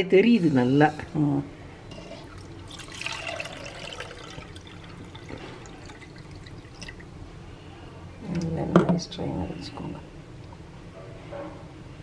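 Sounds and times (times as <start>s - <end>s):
liquid trickling through strainer: 2.1s - 7.1s.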